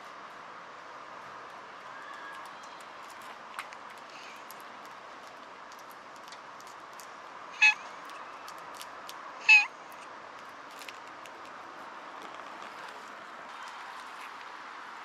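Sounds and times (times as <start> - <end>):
cat meowing: 7.6 - 7.8, 9.4 - 9.7.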